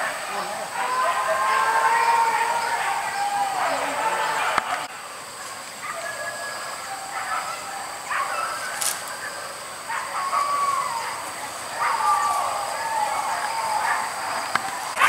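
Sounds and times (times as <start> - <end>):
steady high hiss: 0.0 - 15.0.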